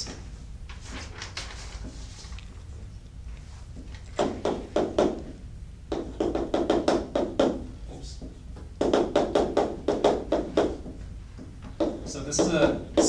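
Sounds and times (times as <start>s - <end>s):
chalk tapping on blackboard: 5.9s - 7.6s, 8.2s - 13.0s.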